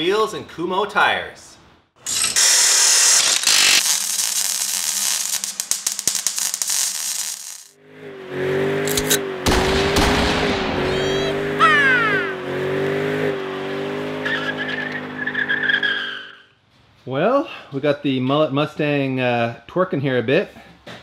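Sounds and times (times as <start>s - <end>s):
car engine at high revs: 7.8s - 15.8s.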